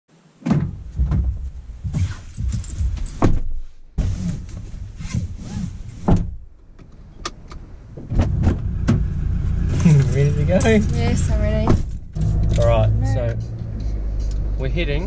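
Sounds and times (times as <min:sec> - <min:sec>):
thumps and knocks in a car: 0:00.4 - 0:07.0, 0:08.0 - 0:09.1, 0:10.8 - 0:12.4
seatbelts being pulled: 0:01.9 - 0:06.2.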